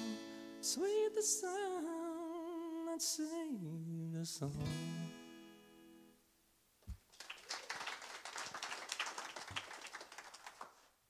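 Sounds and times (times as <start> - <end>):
acoustic guitar chord: 3.6 - 6.2
small audience clapping: 6.9 - 11.0.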